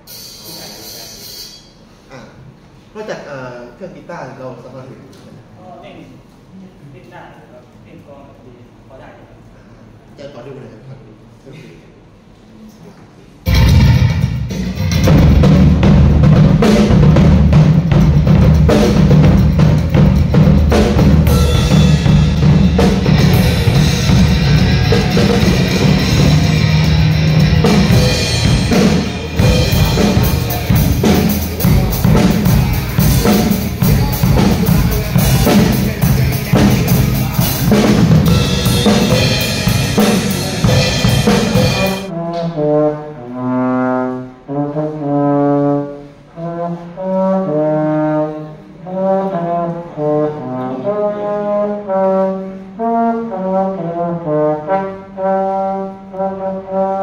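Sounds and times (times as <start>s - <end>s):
drum kit played hard and fast: 13.5s - 42.1s
trombone notes: 13.5s - 57.0s.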